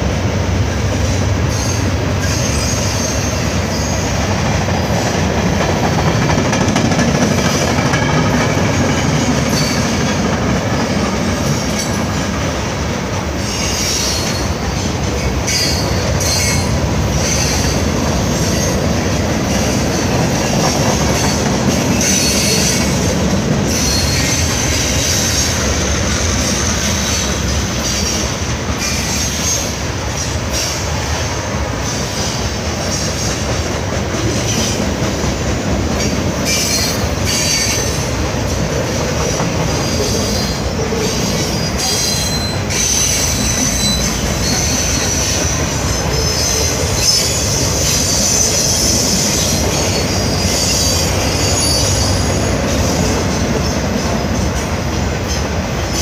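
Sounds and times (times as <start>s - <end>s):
steel wheels rumbling on rail: 0.0s - 56.0s
high-pitched wheel squeal: 23.7s - 25.6s, 39.8s - 53.0s.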